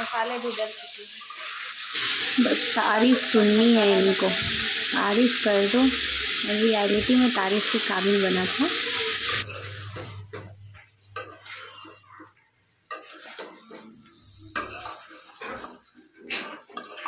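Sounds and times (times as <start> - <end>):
frying sizzle: 0.0 - 17.0
spoon scraping metal pan: 11.1 - 12.0, 14.5 - 17.0.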